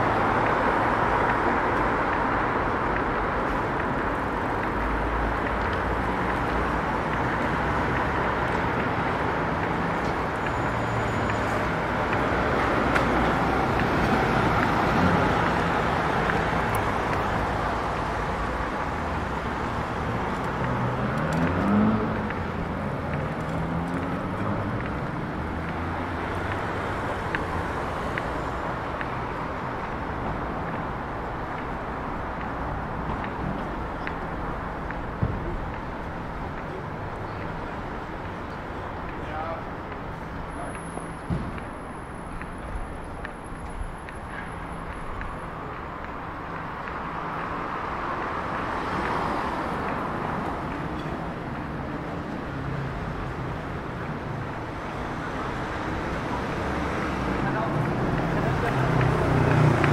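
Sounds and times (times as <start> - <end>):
city road traffic: 0.0 - 59.9
vehicle engine pulling away: 20.8 - 24.8.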